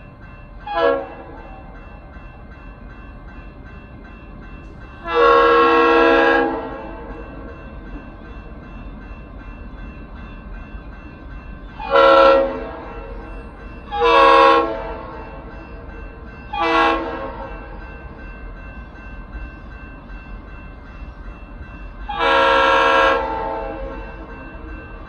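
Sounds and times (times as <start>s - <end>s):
locomotive air horn chord: 5.0s - 6.8s, 11.8s - 13.0s, 13.9s - 15.2s, 16.6s - 17.5s, 22.1s - 24.0s.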